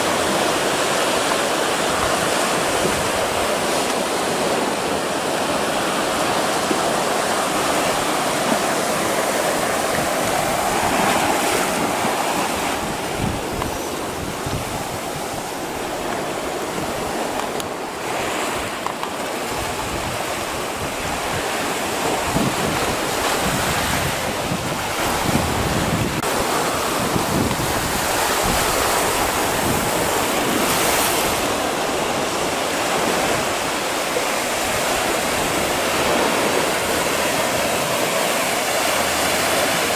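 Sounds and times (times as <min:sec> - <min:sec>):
small waves breaking on sand and rocks: 0:00.0 - 0:39.9
wind buffeting microphone: 0:01.7 - 0:38.2.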